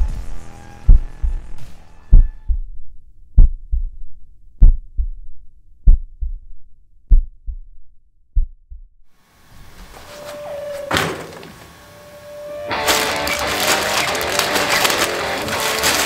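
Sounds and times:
heartbeat thumps: 0.9 - 9.1.

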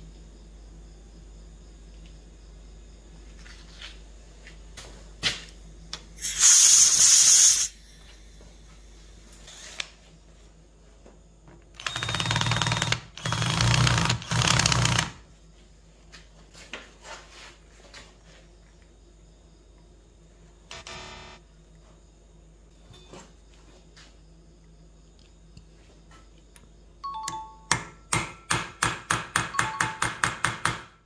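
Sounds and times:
power tool running: 11.8 - 15.2, 20.7 - 21.4.

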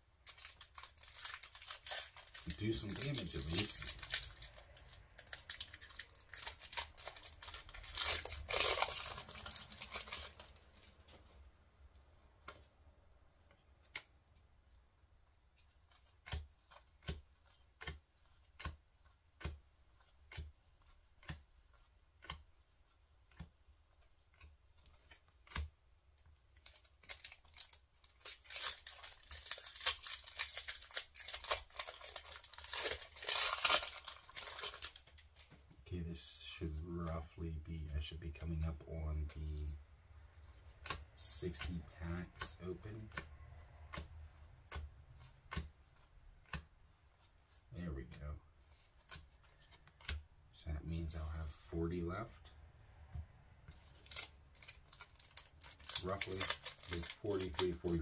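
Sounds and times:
foil wrapper crinkling and tearing: 0.1 - 11.4, 26.6 - 35.6, 53.7 - 58.0.

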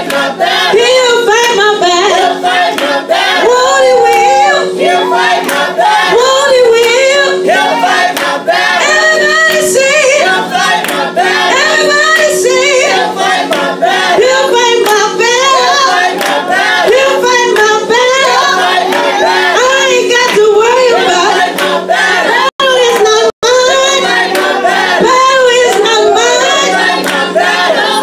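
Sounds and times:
hands clapping: 0.0 - 0.3, 2.6 - 3.0, 4.0 - 5.7, 6.7 - 7.2, 7.8 - 8.4, 10.6 - 11.1, 13.2 - 13.7, 14.8 - 15.1, 16.1 - 16.6, 18.8 - 19.2, 20.2 - 21.8, 24.2 - 24.6, 25.6 - 25.9, 26.9 - 27.7
woman singing into microphone: 0.0 - 7.9, 8.7 - 10.5, 11.3 - 16.2, 16.8 - 21.6, 22.2 - 27.1
group singing: 0.0 - 28.0.

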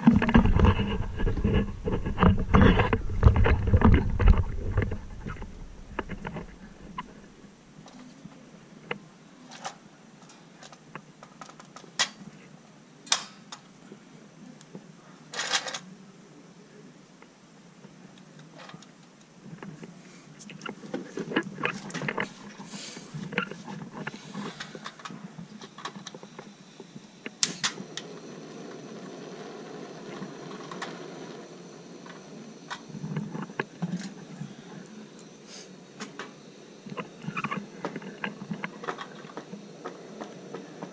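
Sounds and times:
burner hissing gas: 15.9 - 40.9.

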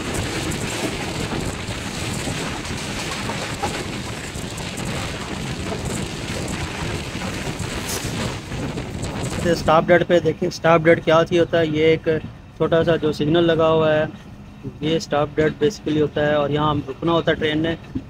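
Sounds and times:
wind on microphone: 0.0 - 13.8
train running noise: 0.0 - 18.0.

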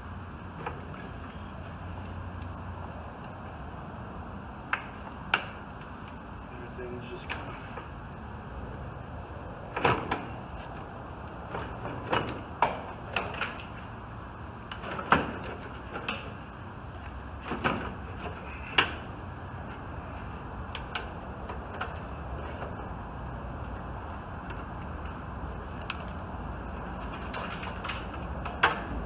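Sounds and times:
steady low hum: 0.0 - 29.0
metallic clunks and knocks: 11.5 - 13.7.

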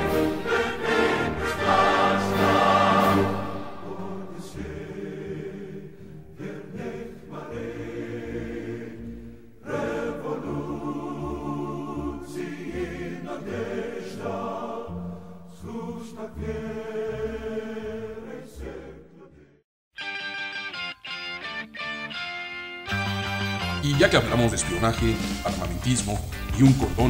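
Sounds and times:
choir singing held chords: 0.0 - 19.6.

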